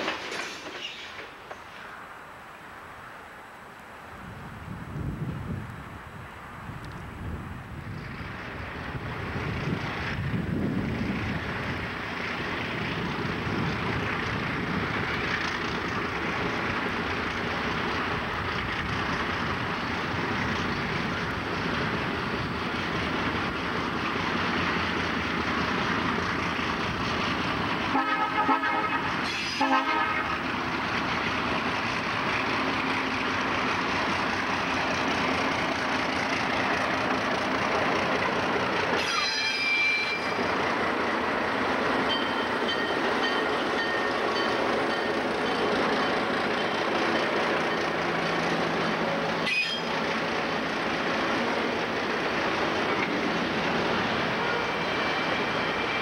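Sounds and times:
freight train passing: 0:00.0 - 0:56.0
locomotive air horn blasts: 0:27.9 - 0:30.4, 0:54.3 - 0:56.0.

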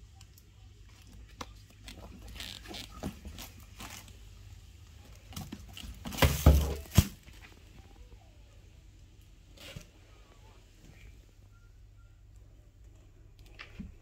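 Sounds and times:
bag rustling and bumping: 0:05.3 - 0:07.4.

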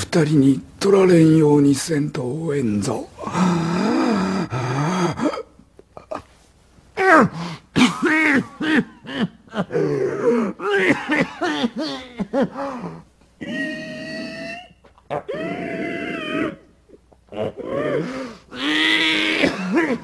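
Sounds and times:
man groaning and gasping in pain: 0:03.2 - 0:05.5, 0:08.7 - 0:13.0, 0:17.4 - 0:20.0
man crying out: 0:07.0 - 0:12.6, 0:13.4 - 0:16.6.

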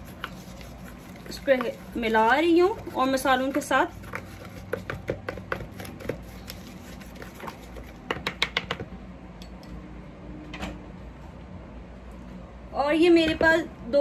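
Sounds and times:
spoon scraping plastic bowl: 0:00.0 - 0:08.4.

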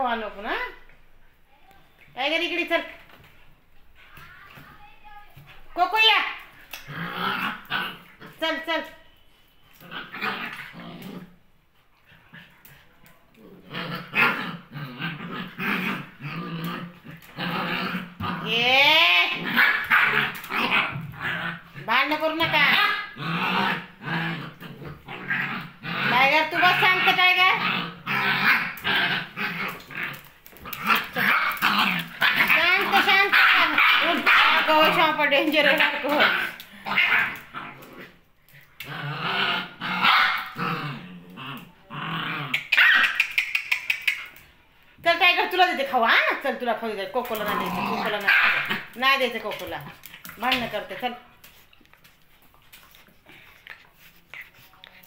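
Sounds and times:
dogs growling: 0:06.4 - 0:08.4, 0:09.8 - 0:11.4, 0:12.0 - 0:44.4, 0:47.2 - 0:55.0.

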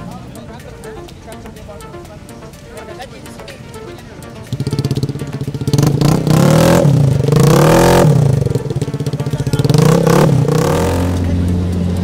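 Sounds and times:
scooter engine revving: 0:03.3 - 0:12.0.

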